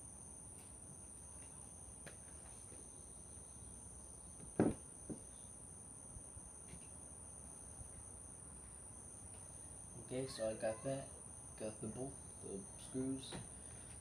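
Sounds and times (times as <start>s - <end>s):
plastic helmet knocking on wood: 4.6s - 5.2s
high-pitched insect drone: 8.9s - 13.3s.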